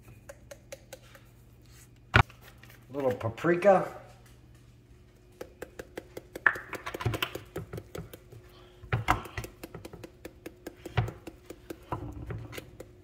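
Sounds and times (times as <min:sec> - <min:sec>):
spice jar clicking and ticking: 0:00.2 - 0:01.3, 0:05.2 - 0:08.4, 0:09.1 - 0:13.0.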